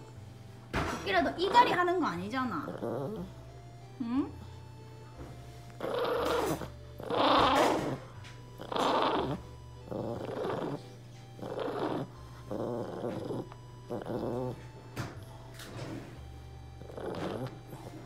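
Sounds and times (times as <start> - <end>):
small dog growling: 2.5 - 4.5, 5.8 - 14.7, 16.8 - 18.0.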